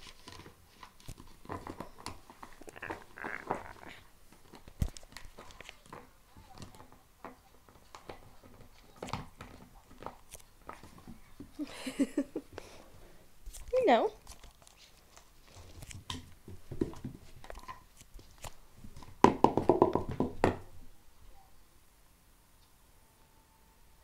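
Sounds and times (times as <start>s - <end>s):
dog chewing plastic bottle: 0.0s - 11.6s.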